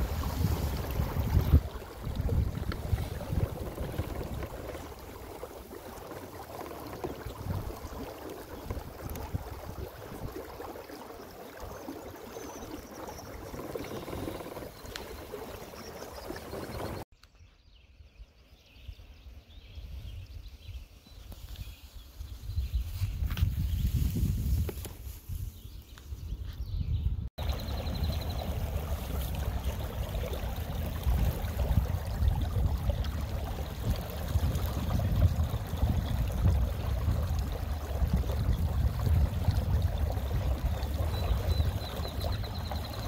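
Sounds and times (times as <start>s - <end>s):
wind on microphone: 0.0s - 10.7s, 18.1s - 43.0s
water lapping: 0.0s - 17.1s, 27.4s - 43.0s
water washing along boat hull: 0.0s - 17.1s, 27.4s - 43.0s.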